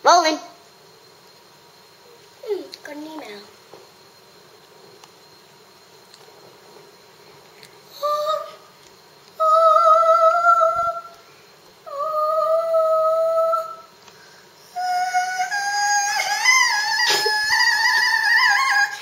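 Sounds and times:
girl humming: 7.9s - 8.6s, 11.9s - 13.8s, 14.7s - 19.0s
girl singing wavering line: 7.9s - 14.0s, 14.6s - 19.0s.

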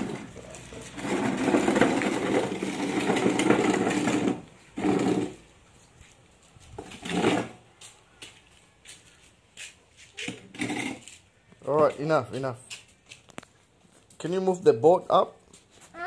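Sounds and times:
chair legs scraping concrete: 0.0s - 16.0s.

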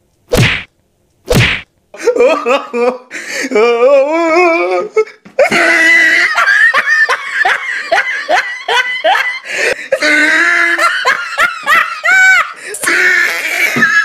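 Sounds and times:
loud human laughter: 2.0s - 3.1s, 5.4s - 14.0s.

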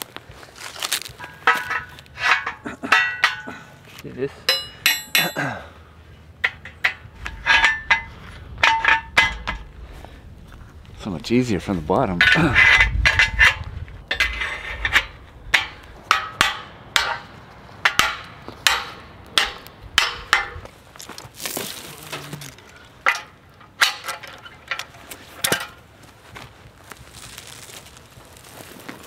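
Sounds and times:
metal fence stretcher clinking: 1.2s - 3.6s, 4.4s - 5.5s, 6.4s - 9.7s, 12.0s - 25.8s
short rustle: 25.0s - 29.0s.

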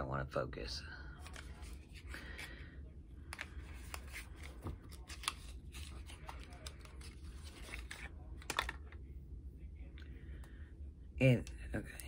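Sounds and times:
packaging clicks and rustles: 3.3s - 9.0s.

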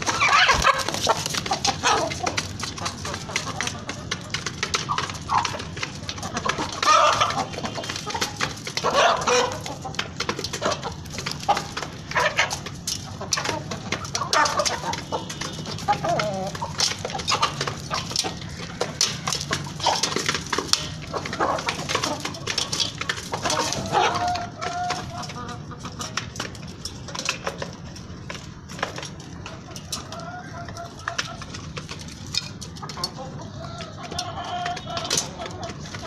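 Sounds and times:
beaks pecking at feed: 0.0s - 36.0s
chickens clucking: 0.0s - 36.0s.

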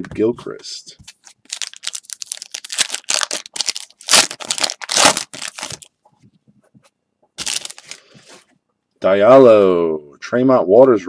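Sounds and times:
foil wrapper crinkling: 1.1s - 5.9s, 7.4s - 8.2s
foil wrapper tearing: 1.1s - 5.9s, 7.4s - 8.0s.

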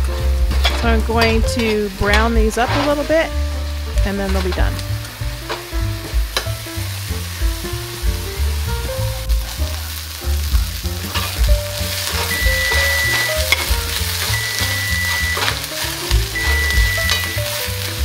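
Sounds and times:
background music: 0.0s - 18.0s
onions sizzling in a skillet: 0.0s - 18.0s
metal spatula scraping a pan: 0.6s - 3.4s, 11.0s - 17.9s.

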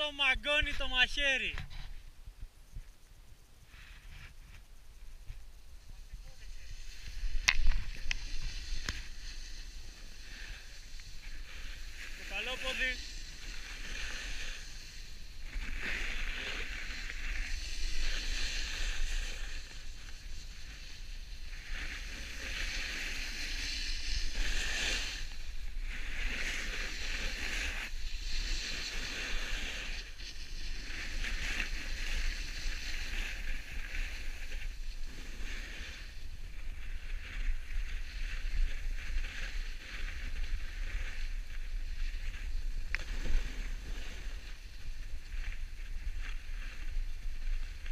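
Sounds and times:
wind rumble on microphone: 1.6s - 47.9s
snowboard scraping over snow: 5.2s - 47.9s.

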